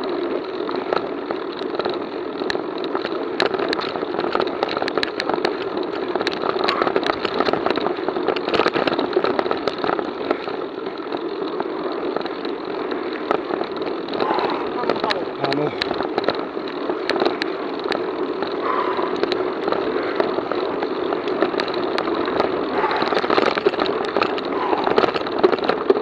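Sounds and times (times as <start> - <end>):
bike clicks and rattles: 0.0 - 26.0
bike tyre rumble: 0.0 - 26.0
wind on microphone: 12.8 - 17.5, 18.3 - 26.0.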